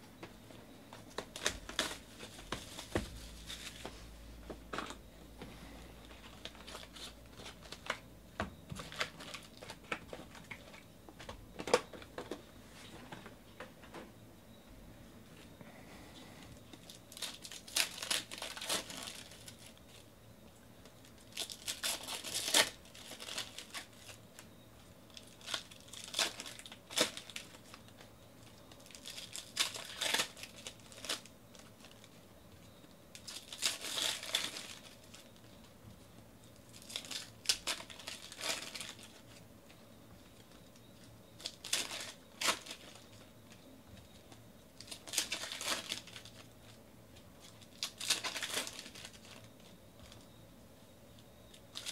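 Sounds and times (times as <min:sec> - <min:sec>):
foil wrappers tearing and crinkling: 0:01.1 - 0:03.8, 0:06.1 - 0:08.0, 0:08.8 - 0:10.8, 0:16.8 - 0:20.0, 0:21.1 - 0:24.5, 0:25.1 - 0:28.1, 0:28.7 - 0:32.1, 0:33.1 - 0:35.3, 0:36.7 - 0:39.4, 0:41.4 - 0:43.3, 0:44.8 - 0:46.8, 0:47.4 - 0:49.5.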